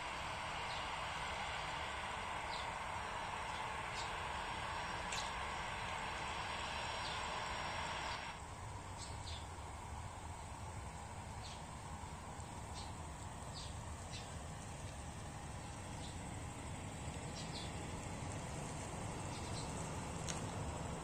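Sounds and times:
distant jet engines hissing: 0:00.0 - 0:21.0.

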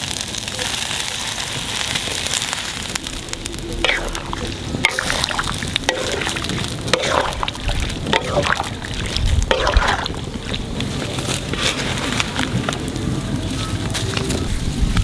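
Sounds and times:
pot bubbling: 0:00.0 - 0:13.1
spatula stirring shrimp in wok: 0:03.8 - 0:10.6.

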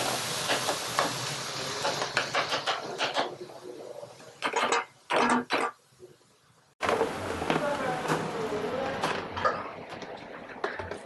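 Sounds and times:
meat sizzling in a frying pan: 0:00.0 - 0:04.4.

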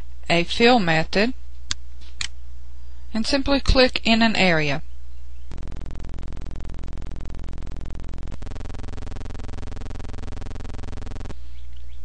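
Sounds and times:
synthesizer drone buzzing: 0:05.5 - 0:12.0.

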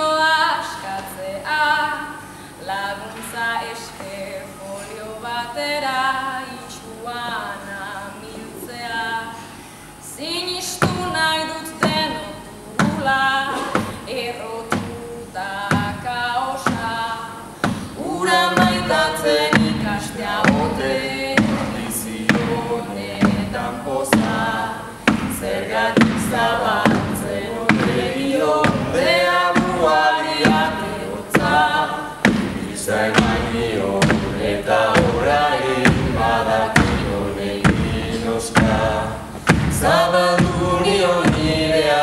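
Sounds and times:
a cappella group singing: 0:00.0 - 0:42.0
beat of sharp knocks: 0:18.5 - 0:41.9.

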